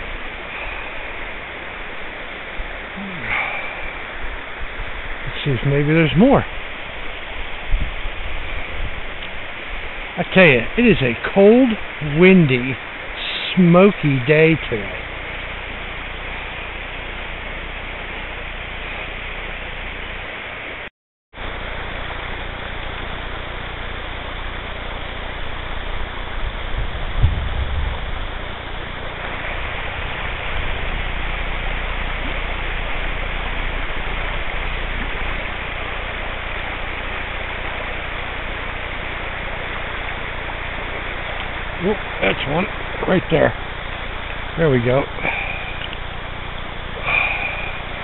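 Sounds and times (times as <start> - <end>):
river water rushing: 0.0 - 27.1, 28.0 - 48.0
wind buffeting microphone: 7.3 - 10.0, 25.6 - 32.6.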